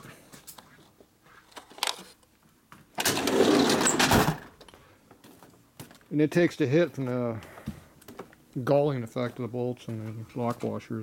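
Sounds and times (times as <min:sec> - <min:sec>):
metal drawer sliding shut: 0:03.0 - 0:04.5.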